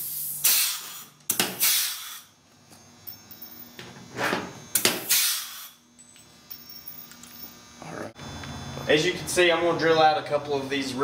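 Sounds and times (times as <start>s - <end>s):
rivet gun air hiss: 0.0s - 2.4s, 4.8s - 5.8s.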